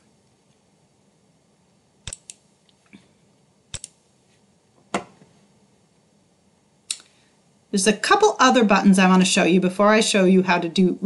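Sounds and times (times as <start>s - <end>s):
computer mouse clicks: 2.1s - 2.4s, 3.7s - 4.0s.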